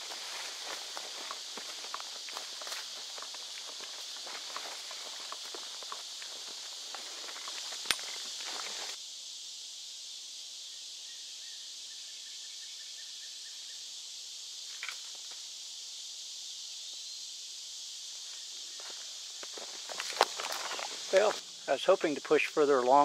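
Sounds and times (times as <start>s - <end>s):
footsteps crunching on leaf litter: 0.0s - 9.0s, 18.8s - 21.4s
insect chorus: 0.0s - 23.0s.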